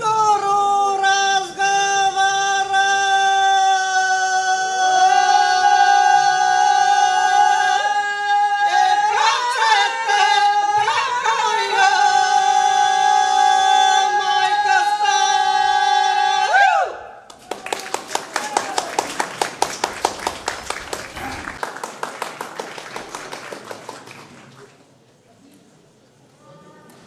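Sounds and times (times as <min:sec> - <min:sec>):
unaccompanied folk singing: 0:00.0 - 0:16.6.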